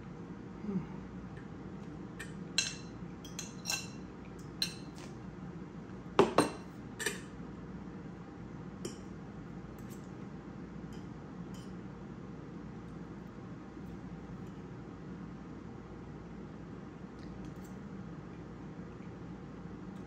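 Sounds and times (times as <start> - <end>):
fork clinking on ceramic bowl: 2.2 - 4.0, 6.2 - 7.3.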